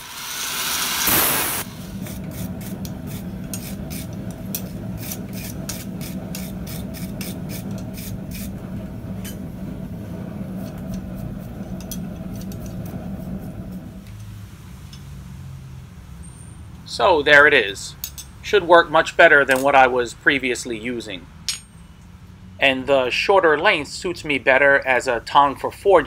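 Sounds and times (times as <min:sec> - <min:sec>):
angle grinder on steel: 0:00.0 - 0:09.5, 0:10.2 - 0:14.0
steady low hum: 0:01.1 - 0:15.0
hammer striking metal: 0:21.5 - 0:21.8.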